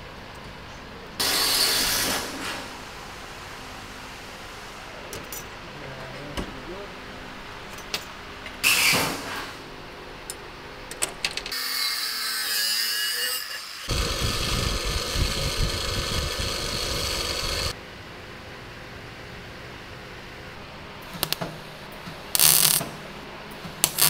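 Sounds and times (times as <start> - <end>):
power tool whining on metal: 13.2 - 17.8.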